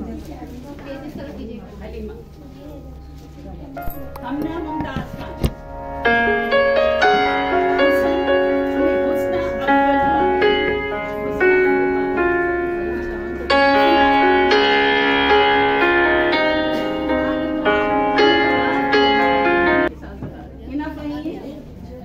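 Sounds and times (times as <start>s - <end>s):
piano music: 3.7s - 19.9s.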